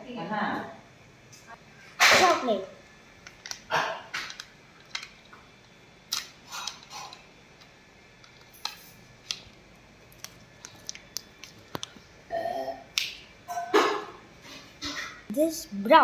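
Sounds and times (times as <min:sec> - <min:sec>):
plastic and foil crinkling: 0:08.4 - 0:12.0.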